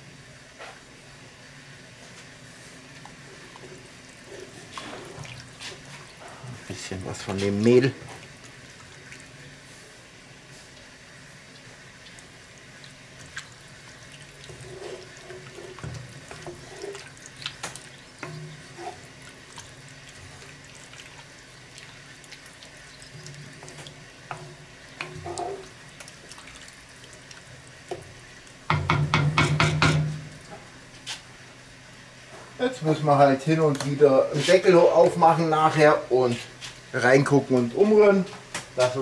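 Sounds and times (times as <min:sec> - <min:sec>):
wooden spatula stirring thick stew: 0:03.0 - 0:08.5, 0:13.2 - 0:22.0.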